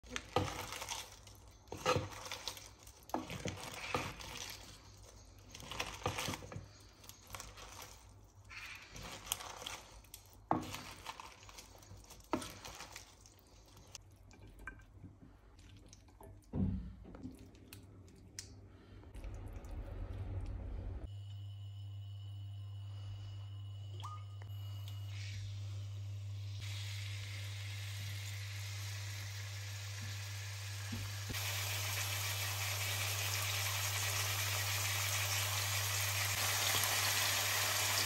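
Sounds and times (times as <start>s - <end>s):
wet squishy salad rustling: 0.1s - 6.4s, 7.0s - 14.6s.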